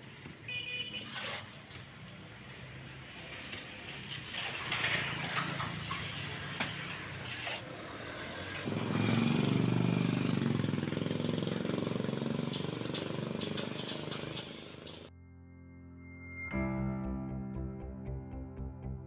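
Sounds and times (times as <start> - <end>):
street traffic: 0.0 - 15.1
engine running nearby: 1.7 - 15.1.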